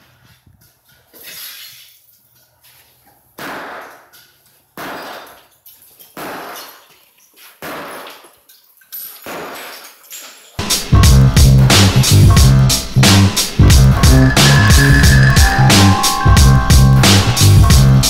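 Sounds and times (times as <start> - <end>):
shattering tile rattle: 4.1 - 10.6
sledgehammer smashing ceramic tile: 6.0 - 7.0, 9.0 - 10.3.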